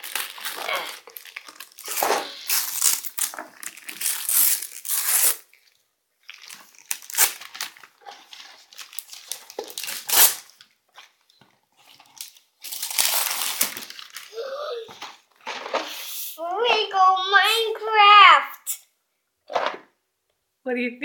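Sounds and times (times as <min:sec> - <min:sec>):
wrapping paper tearing and crumpling: 0:00.0 - 0:11.2, 0:11.8 - 0:14.8.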